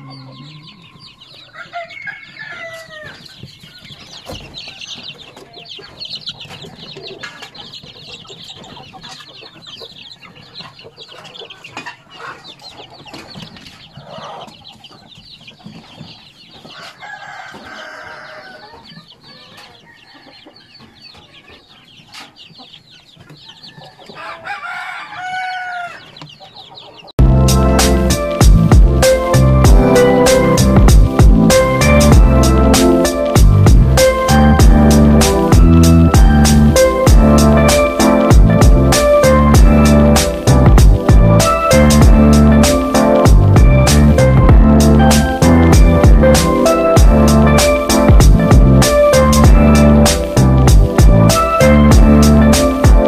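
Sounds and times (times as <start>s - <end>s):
chicks peeping: 0.0s - 53.0s
louder longer chick calls: 23.5s - 26.8s.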